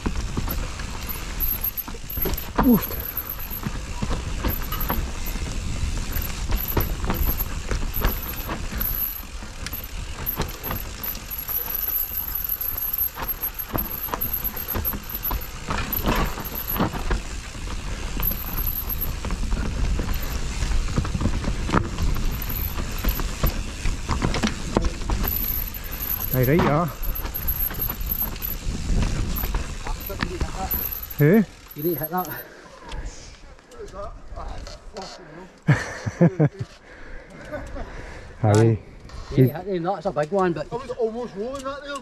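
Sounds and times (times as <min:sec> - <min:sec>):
tyres rumbling on dirt: 0:00.0 - 0:32.5
bike chain and frame rattling: 0:00.0 - 0:32.6, 0:37.2 - 0:42.0
wind buffeting microphone: 0:28.0 - 0:30.6.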